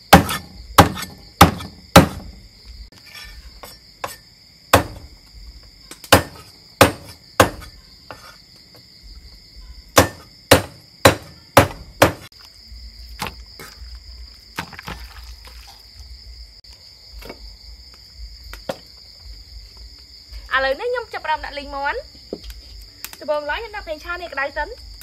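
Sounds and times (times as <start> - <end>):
cleaver chopping on wooden board: 0.1 - 2.4, 3.6 - 5.1, 6.0 - 8.3, 10.0 - 12.3.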